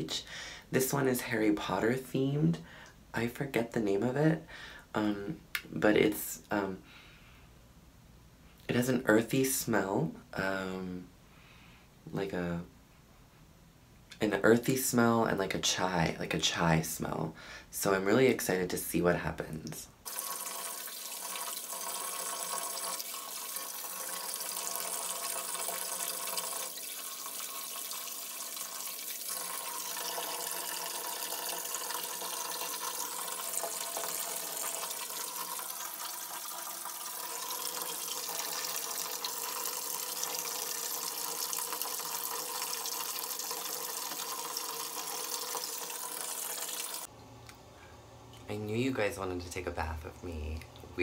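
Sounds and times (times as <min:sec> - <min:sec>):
water pouring into a bathtub: 0:20.0 - 0:47.1.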